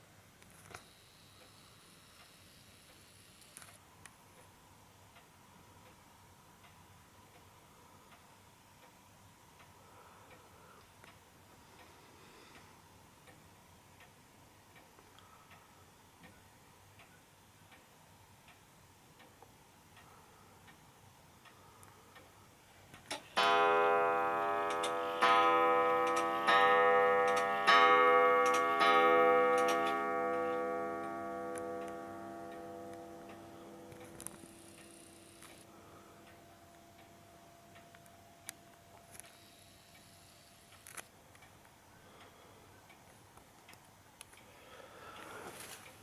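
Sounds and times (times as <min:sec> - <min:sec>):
wall clock ticking: 0:04.3 - 0:39.3
clock striking: 0:23.3 - 0:35.4.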